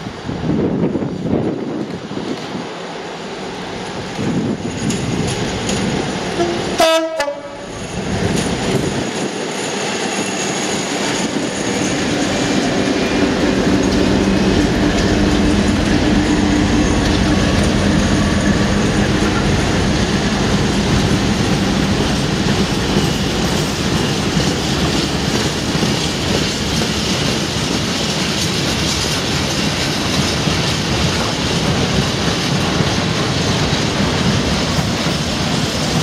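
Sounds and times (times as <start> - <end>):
diesel locomotive engines: 0.0 - 36.0
train rumbling on rails: 0.0 - 36.0
locomotive horn blast: 6.4 - 7.8.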